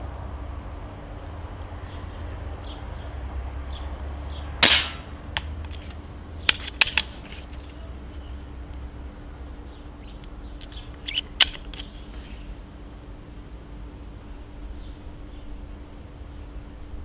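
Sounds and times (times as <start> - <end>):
air rifle shot: 4.6 - 5.2
small sharp clicks: 4.6 - 8.8, 10.2 - 12.2.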